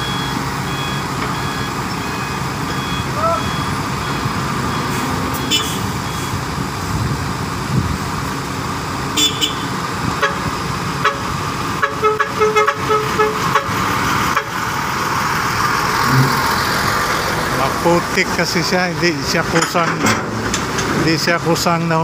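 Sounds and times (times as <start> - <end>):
short beeps: 0.0 - 6.3
diesel engines running: 0.0 - 22.0
metal clanks: 19.5 - 21.0.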